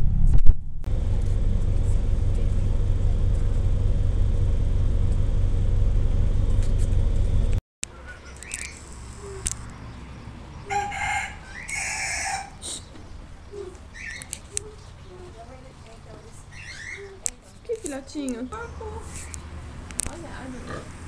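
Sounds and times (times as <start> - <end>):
steady low rumble: 0.0 - 10.7
rooster crowing: 10.6 - 12.6.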